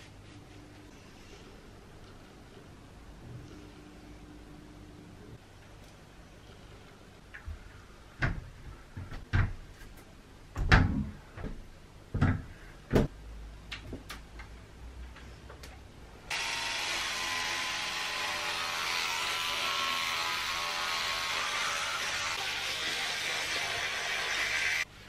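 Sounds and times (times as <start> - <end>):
electric toothbrush buzzing: 16.3 - 24.9.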